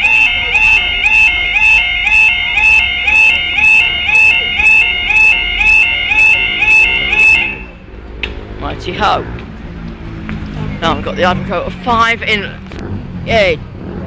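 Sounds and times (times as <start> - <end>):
level crossing alarm yelping: 0.0 - 7.8.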